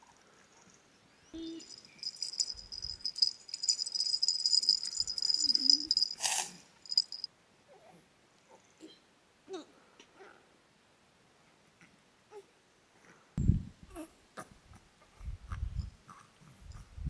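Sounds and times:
baby rattle bells jingling: 0:01.4 - 0:07.3.

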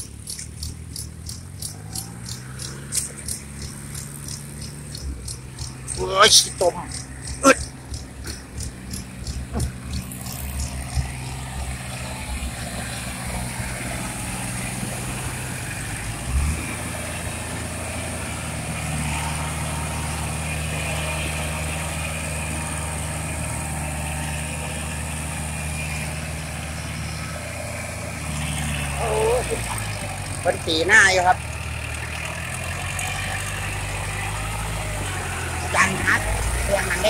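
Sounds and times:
tractor diesel engine running: 0:00.0 - 0:37.0
brief thump: 0:09.5 - 0:09.8.

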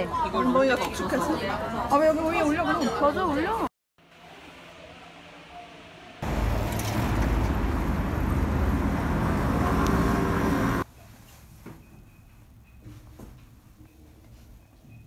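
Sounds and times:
street traffic rumble: 0:06.2 - 0:10.9.

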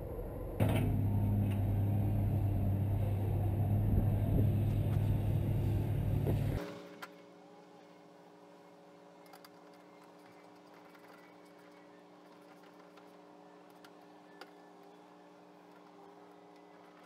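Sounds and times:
low machine hum: 0:00.0 - 0:17.0.

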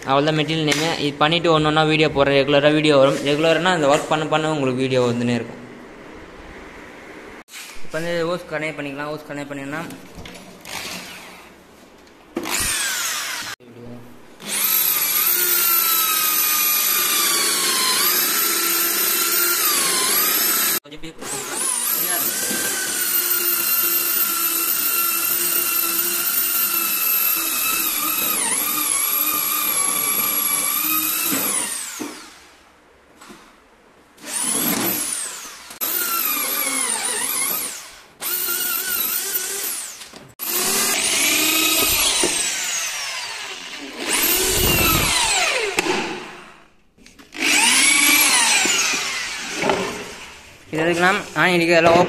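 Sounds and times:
electric drill boring into wood: 0:10.6 - 0:11.4, 0:12.4 - 0:13.6, 0:14.4 - 0:32.5, 0:34.2 - 0:46.5, 0:47.3 - 0:50.3.

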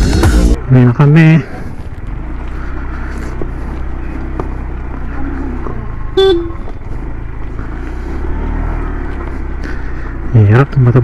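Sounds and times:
motorcycle engine running: 0:00.0 - 0:11.0
motorcycle horn toot: 0:06.1 - 0:06.8.

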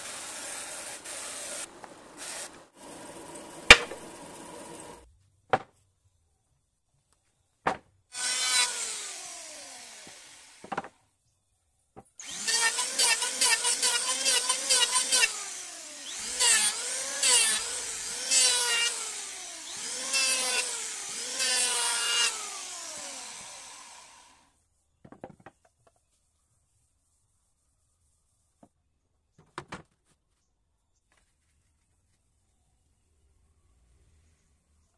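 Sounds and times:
power tool cutting wood: 0:00.0 - 0:05.0, 0:08.1 - 0:10.8, 0:12.2 - 0:24.5.

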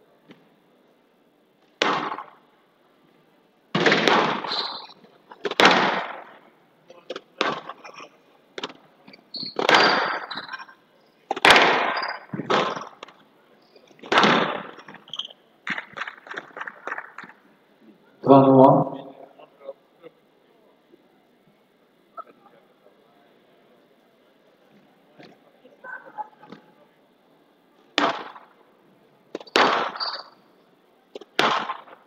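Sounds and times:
court shoes squeaking: 0:04.4 - 0:05.6, 0:07.0 - 0:17.4, 0:29.3 - 0:30.5
squash ball cracking off rackets: 0:05.4 - 0:06.3, 0:07.1 - 0:07.8, 0:09.6 - 0:10.6, 0:11.3 - 0:13.2, 0:14.0 - 0:15.1, 0:29.3 - 0:30.2, 0:31.1 - 0:32.0.

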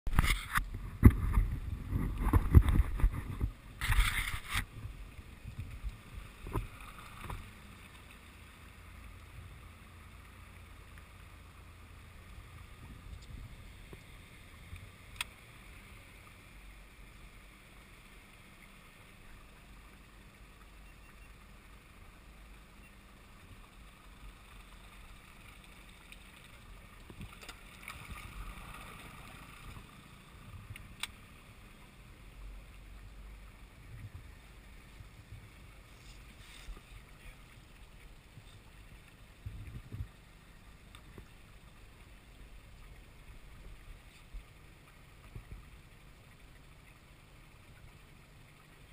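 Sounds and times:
knocks and splashing: 0:00.1 - 0:05.0
water noise: 0:00.1 - 0:48.9
boat motor low rumble: 0:00.5 - 0:48.9.

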